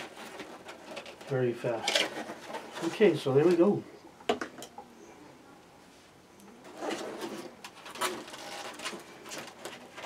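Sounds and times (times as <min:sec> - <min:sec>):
cardboard scraping and rustling: 0:00.0 - 0:03.7, 0:06.6 - 0:10.0.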